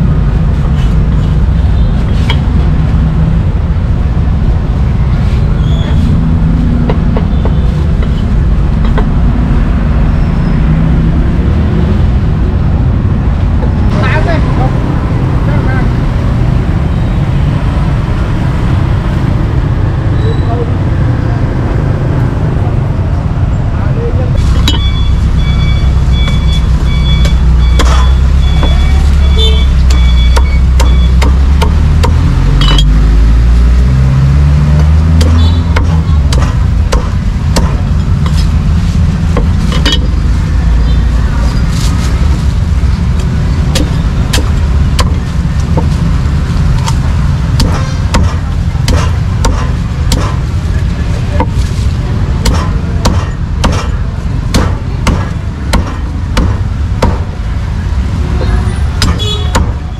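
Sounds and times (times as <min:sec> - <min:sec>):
road traffic rumble: 0:00.0 - 0:59.9
cleaver chopping on wooden board: 0:30.4 - 0:32.9, 0:34.8 - 0:38.5, 0:43.7 - 0:45.2, 0:47.6 - 0:50.4, 0:52.4 - 0:57.3, 0:59.0 - 0:59.8.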